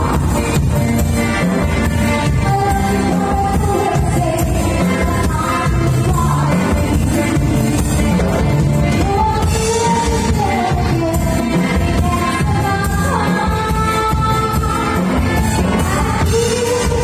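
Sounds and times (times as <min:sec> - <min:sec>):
drums: 0:00.0 - 0:17.0
electric guitars: 0:00.0 - 0:17.0
keyboard: 0:00.0 - 0:17.0
woman singing: 0:00.0 - 0:17.0.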